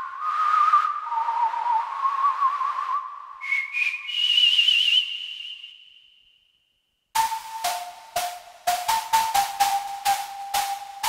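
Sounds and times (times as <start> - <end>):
synthesizer lead melody: 7.2 - 11.0.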